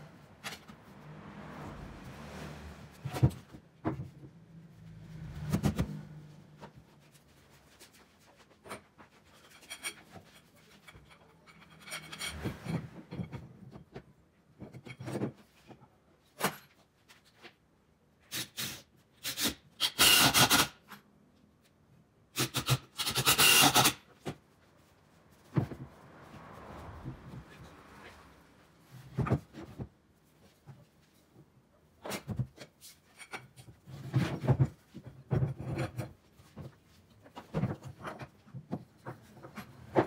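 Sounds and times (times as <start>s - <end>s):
knocks and clicks of wood and tools: 2.8s - 4.5s, 5.3s - 7.0s, 29.0s - 31.4s, 32.0s - 40.0s.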